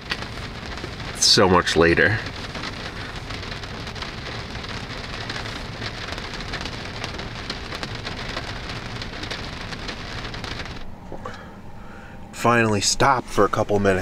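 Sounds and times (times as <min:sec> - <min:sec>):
heavy rain on car roof: 0:00.0 - 0:10.9.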